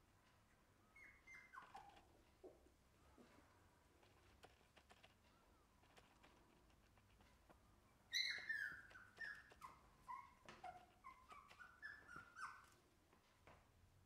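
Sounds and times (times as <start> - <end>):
puppies yelping: 1.0 - 2.1, 8.1 - 12.8.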